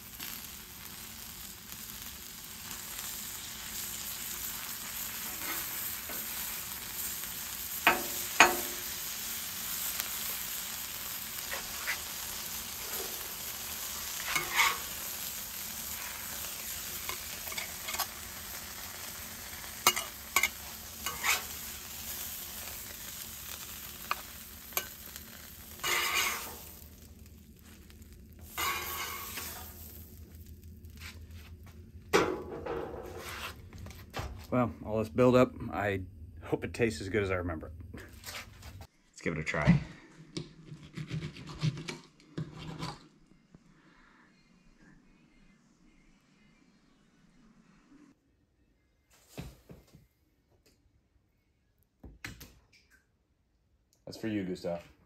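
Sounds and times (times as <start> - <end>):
stalks sizzling in butter: 0.0 - 32.0
metal spatula scraping griddle: 4.9 - 6.6, 11.3 - 27.8, 28.4 - 30.2, 32.2 - 33.7.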